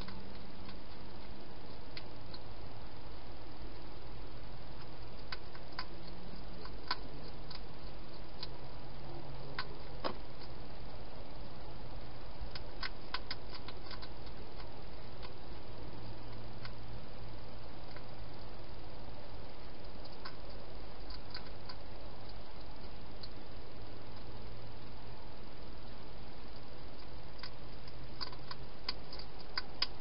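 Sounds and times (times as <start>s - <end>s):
hedgehog clicking and crunching: 0.0s - 30.0s
steady hiss: 0.0s - 30.0s.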